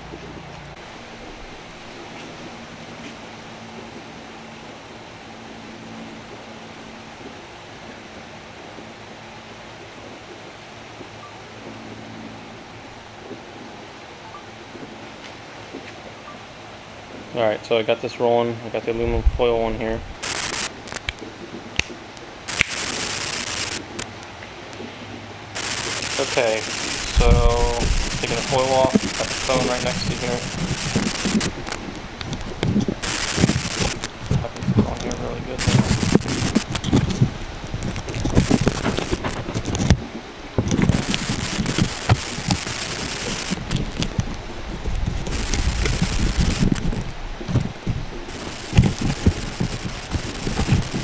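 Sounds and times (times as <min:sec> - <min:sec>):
electrical interference hiss and crackle: 0:00.0 - 0:51.0
aluminum foil crinkling: 0:20.2 - 0:21.2, 0:22.4 - 0:24.1, 0:25.6 - 0:51.0
sharp clicks: 0:20.2 - 0:24.1, 0:25.6 - 0:40.0, 0:40.6 - 0:44.4, 0:45.2 - 0:51.0.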